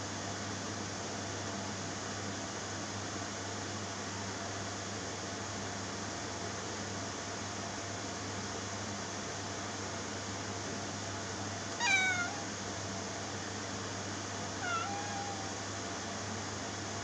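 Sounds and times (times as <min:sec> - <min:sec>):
kitten meowing: 0:11.8 - 0:12.5, 0:14.6 - 0:15.7.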